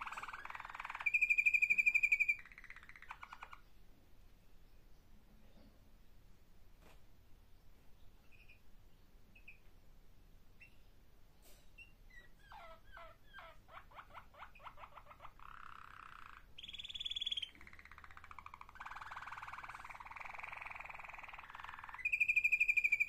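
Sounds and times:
canary singing: 0:00.0 - 0:03.8, 0:08.2 - 0:08.7, 0:09.3 - 0:09.7, 0:11.8 - 0:23.0.

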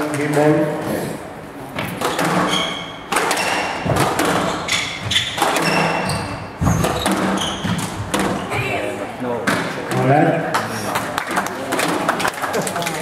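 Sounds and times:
shoes squeaking on court floor: 0:01.8 - 0:08.5
squash ball knocking: 0:01.8 - 0:08.8.

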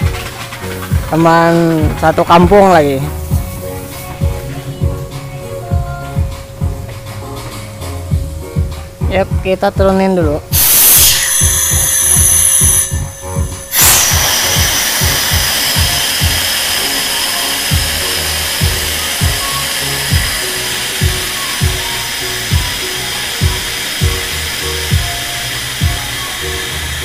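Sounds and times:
background music with beat: 0:00.0 - 0:27.0
hydraulic lift hissing: 0:10.5 - 0:27.0.

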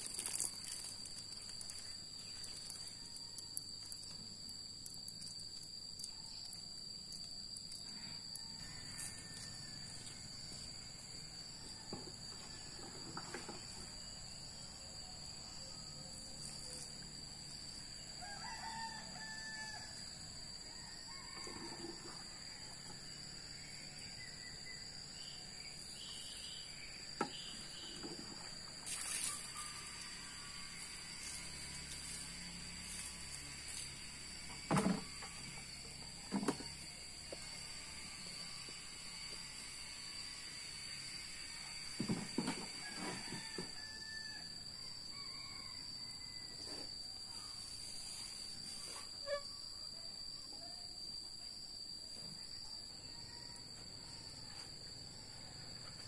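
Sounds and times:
rooster crowing: 0:07.9 - 0:10.4, 0:18.0 - 0:23.1, 0:42.7 - 0:46.9.

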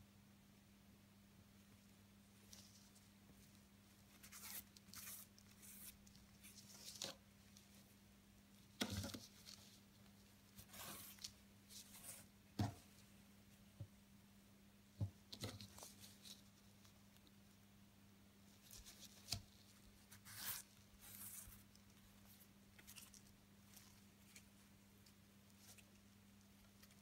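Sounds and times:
low steady hum: 0:00.0 - 0:27.0
needle and ribbon rustling through fabric: 0:02.4 - 0:07.9, 0:08.6 - 0:12.3, 0:15.3 - 0:17.3, 0:18.5 - 0:27.0.

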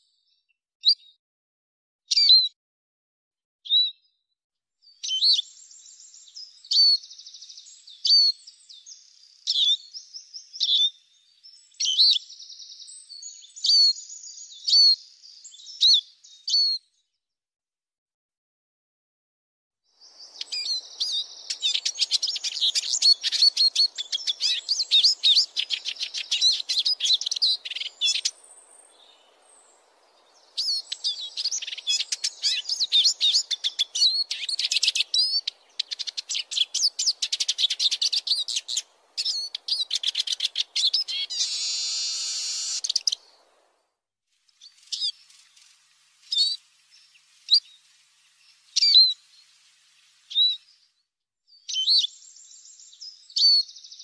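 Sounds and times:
bird twittering: 0:20.1 - 0:43.4, 0:44.6 - 0:49.4
bird call notes: 0:30.6 - 0:43.4.

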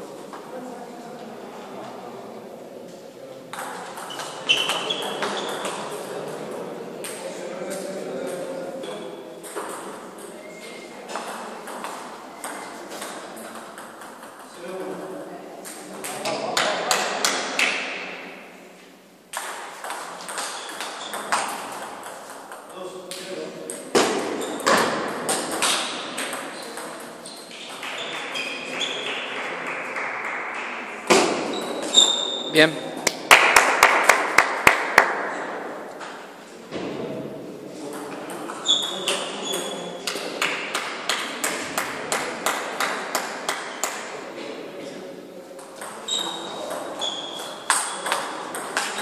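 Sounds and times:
table tennis balls clicking: 0:19.3 - 0:22.7
ball bouncing on table: 0:19.3 - 0:27.1.

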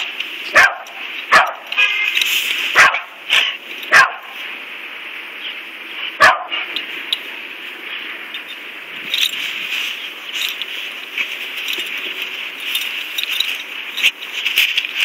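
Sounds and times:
dog barking: 0:00.0 - 0:01.7, 0:02.8 - 0:03.2, 0:03.9 - 0:04.4, 0:06.2 - 0:06.7.

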